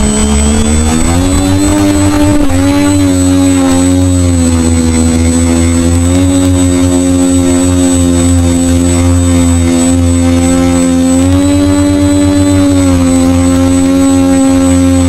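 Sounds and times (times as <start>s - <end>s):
wind buffeting microphone: 0.0s - 5.7s
electric motors and propellers whirring: 0.0s - 15.0s.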